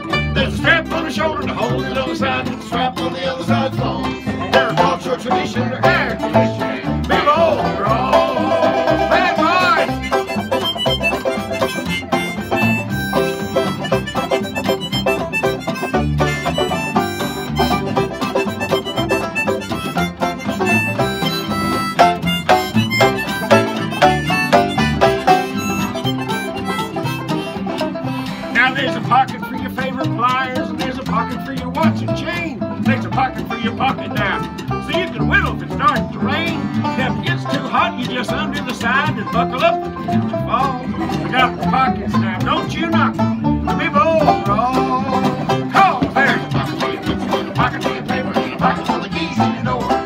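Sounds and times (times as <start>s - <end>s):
banjo picking: 0.0s - 50.0s
upright bass: 0.0s - 50.0s
person singing: 0.3s - 10.2s, 28.0s - 50.0s.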